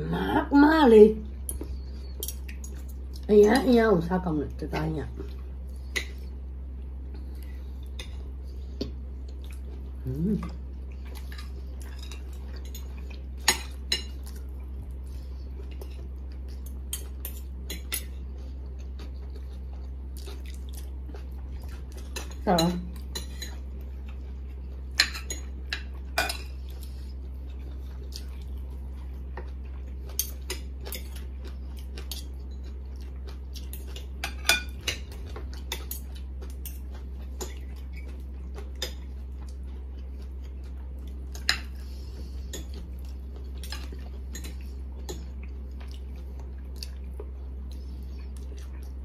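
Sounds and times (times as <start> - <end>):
steady low hum: 0.0 - 49.0.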